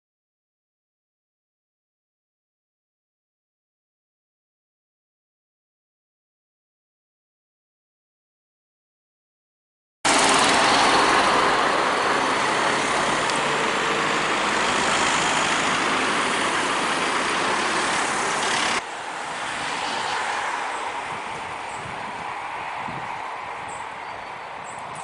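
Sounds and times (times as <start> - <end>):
cars passing close by: 10.1 - 25.0
quiet street background: 10.1 - 25.0.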